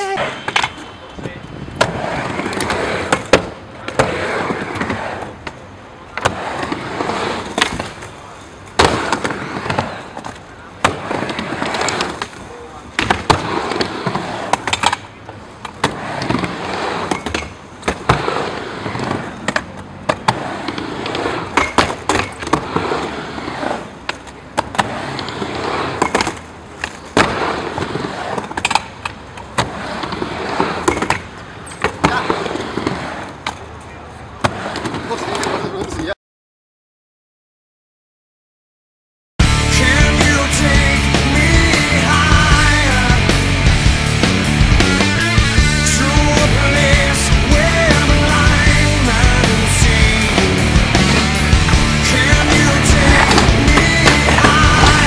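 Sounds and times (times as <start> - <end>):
skateboard wheels rumbling on ramp: 1.2 - 31.3, 31.9 - 33.6, 39.4 - 55.0
skateboard trucks clacking on metal coping: 24.0 - 33.8, 52.2 - 55.0.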